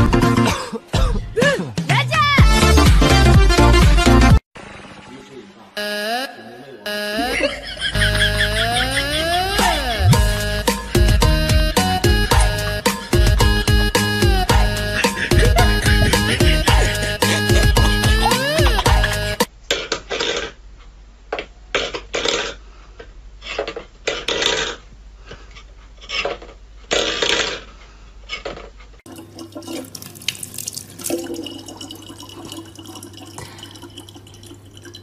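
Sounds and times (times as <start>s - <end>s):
running water: 29.1s - 35.0s
water splashing in a sink: 29.1s - 35.0s.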